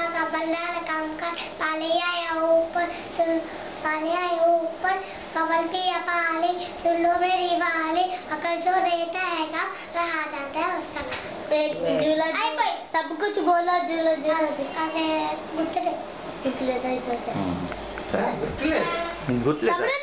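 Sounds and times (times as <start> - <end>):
boy singing unaccompanied: 0.0 - 16.0.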